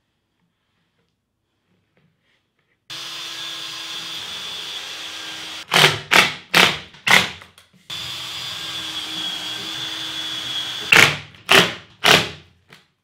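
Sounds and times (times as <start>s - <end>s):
cordless drill driving screws: 2.9s - 6.0s, 7.9s - 12.2s.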